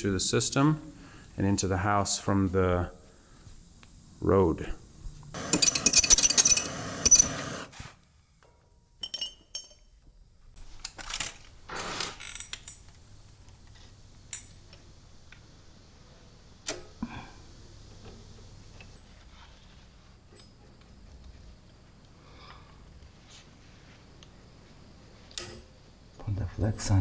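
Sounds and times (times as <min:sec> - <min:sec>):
metal tools clattering and clinking: 0:05.5 - 0:07.4, 0:09.0 - 0:09.9.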